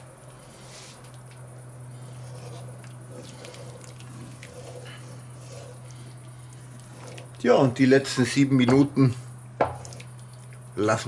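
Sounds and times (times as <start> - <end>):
steady low hum: 0.0 - 11.0
spoon stirring thick stew: 2.0 - 8.4.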